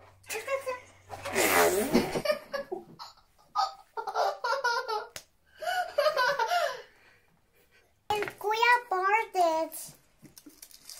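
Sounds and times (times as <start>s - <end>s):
girl laughing: 1.8s - 6.8s.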